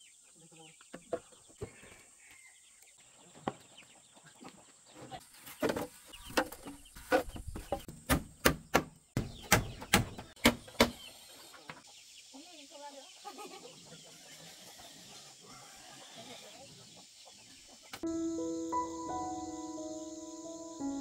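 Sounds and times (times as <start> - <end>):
chickens clucking: 3.0 - 7.9, 9.2 - 18.1.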